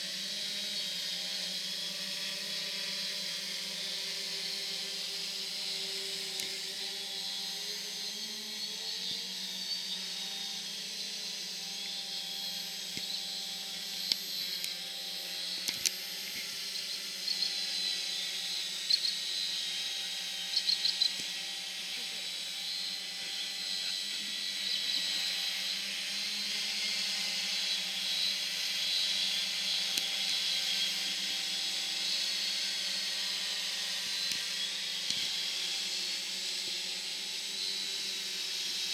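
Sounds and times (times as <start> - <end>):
quadcopter motors whirring: 0.0 - 38.9.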